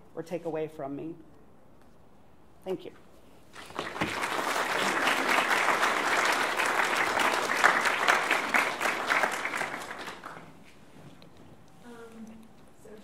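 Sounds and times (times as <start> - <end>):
audience applauding: 3.5 - 10.6.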